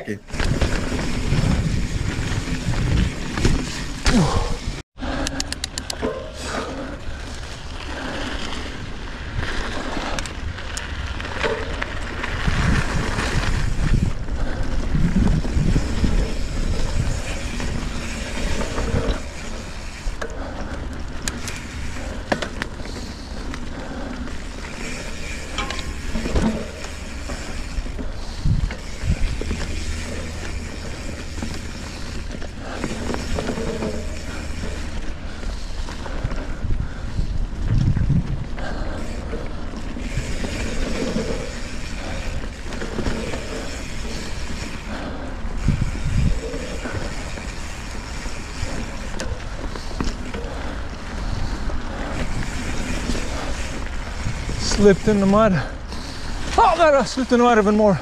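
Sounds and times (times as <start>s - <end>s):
wind on microphone: 0.0s - 4.8s, 12.2s - 19.8s, 28.1s - 31.0s, 35.1s - 54.8s
bike clicks: 0.2s - 58.0s
bike tyres rolling and rattling: 0.2s - 58.0s.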